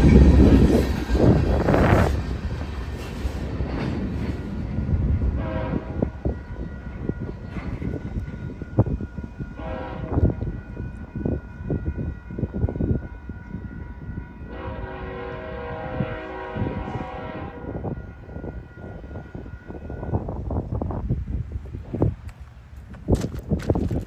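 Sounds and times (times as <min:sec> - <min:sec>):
low uneven train rumble: 0:00.0 - 0:24.0
distant locomotive horn: 0:05.2 - 0:06.3, 0:09.6 - 0:10.5, 0:14.4 - 0:18.7.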